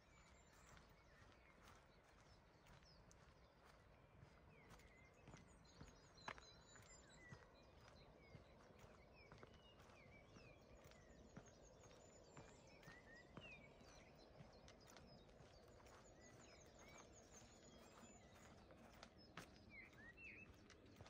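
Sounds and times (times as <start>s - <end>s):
footsteps on a path: 0.1s - 21.0s
birds chirping: 4.7s - 21.0s.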